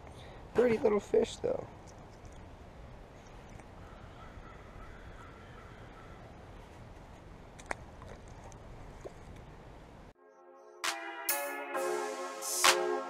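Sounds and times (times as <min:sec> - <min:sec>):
faint outdoor background noise: 0:00.0 - 0:10.2.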